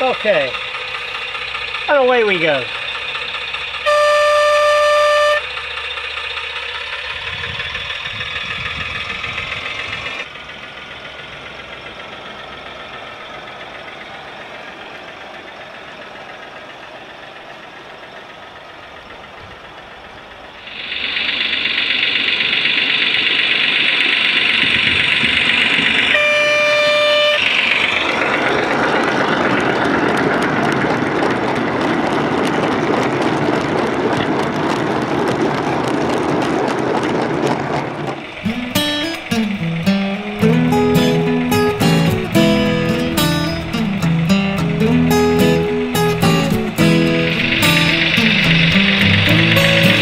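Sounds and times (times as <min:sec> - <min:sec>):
simulated diesel engine running: 0:00.0 - 0:50.0
model train horn blast: 0:03.8 - 0:05.6, 0:26.1 - 0:27.5.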